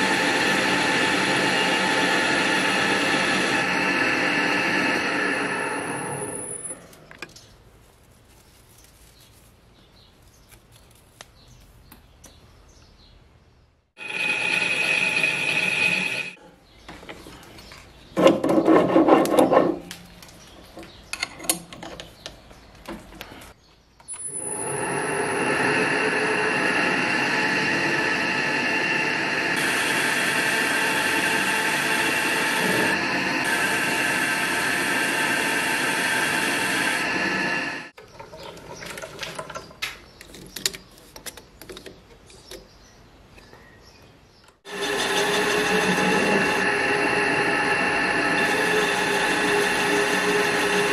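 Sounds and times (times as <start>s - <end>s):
metal lathe cutting steel: 0.0s - 6.8s, 14.0s - 16.4s, 24.3s - 38.0s, 44.7s - 50.9s
metal scraping: 14.0s - 16.5s, 44.7s - 50.9s.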